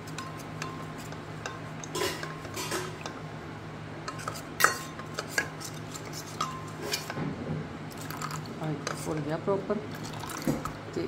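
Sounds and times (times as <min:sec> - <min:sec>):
steady low hum: 0:00.0 - 0:11.0
ladle scraping metal bowl: 0:04.1 - 0:07.2.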